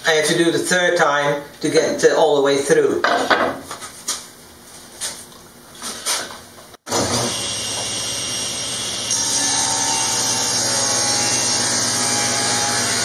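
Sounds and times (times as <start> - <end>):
table saw running: 6.9 - 13.0.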